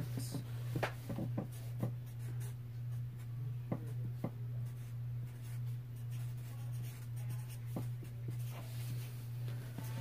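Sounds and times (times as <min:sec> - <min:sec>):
markers writing on paper: 0:03.8 - 0:10.0.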